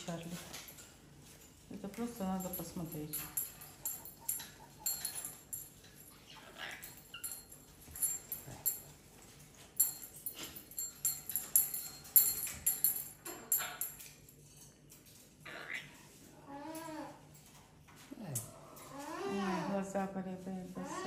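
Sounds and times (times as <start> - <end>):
parrots chattering: 3.3 - 5.6, 6.2 - 7.5, 15.1 - 17.2.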